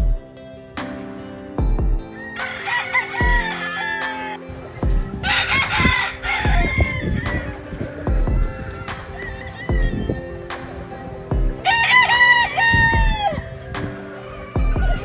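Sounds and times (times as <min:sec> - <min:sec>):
music with deep beat: 0:00.0 - 0:11.8, 0:12.7 - 0:15.0
rooster crowing: 0:02.1 - 0:10.5, 0:11.6 - 0:15.0.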